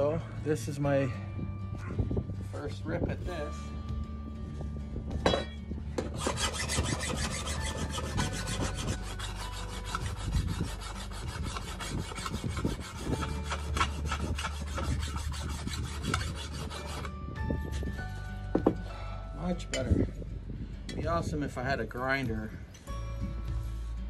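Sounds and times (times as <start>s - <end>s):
hand file rasping on metal blade: 6.0s - 18.3s.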